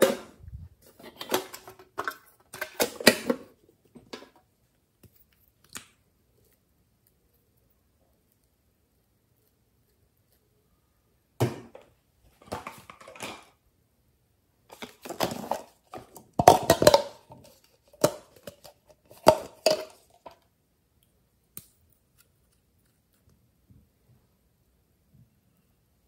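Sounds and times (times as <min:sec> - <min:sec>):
plastic cup crinkling and clicking: 0:14.7 - 0:20.4.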